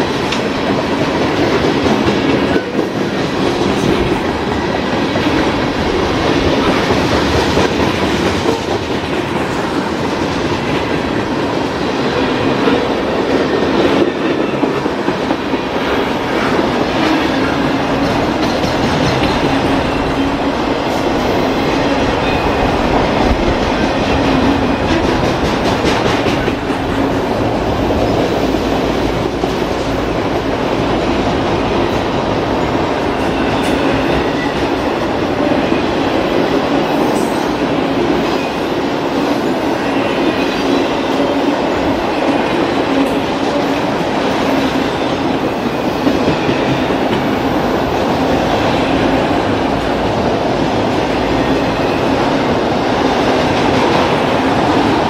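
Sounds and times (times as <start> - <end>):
steel wheels rumbling on rail: 0.0 - 55.0
wheels clacking over rail joints: 12.2 - 31.0.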